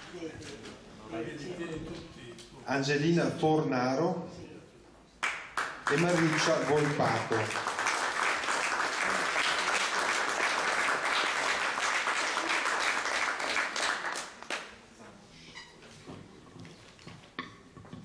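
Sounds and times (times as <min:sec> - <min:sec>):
audience applauding: 0:05.2 - 0:14.8.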